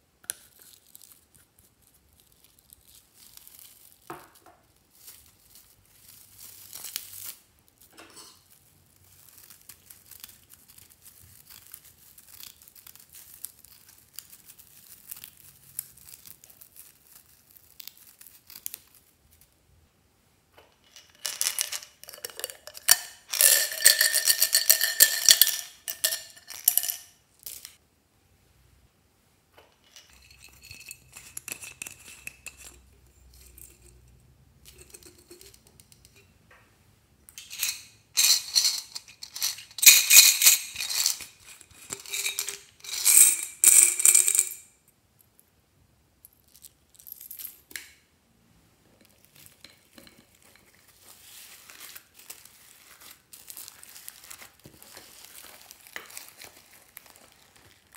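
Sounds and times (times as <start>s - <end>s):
small hard pieces rattling in container: 20.8s - 27.8s, 37.4s - 44.6s.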